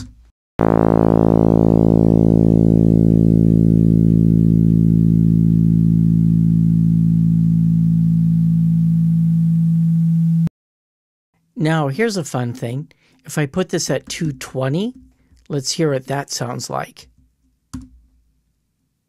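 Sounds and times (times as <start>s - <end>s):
synthesized tone: 0.6s - 10.5s.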